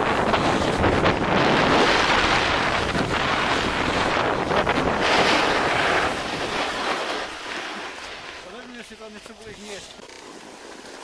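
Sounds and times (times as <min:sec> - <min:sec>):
wind on microphone: 0:00.0 - 0:08.4
skis hissing on snow: 0:00.1 - 0:11.0.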